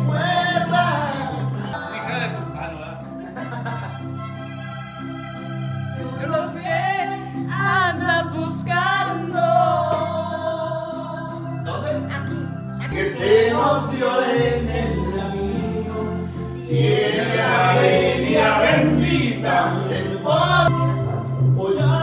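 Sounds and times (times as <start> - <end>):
people singing: 0.0 - 2.4, 6.0 - 11.5, 12.9 - 22.0
steady bass line: 12.0 - 22.0.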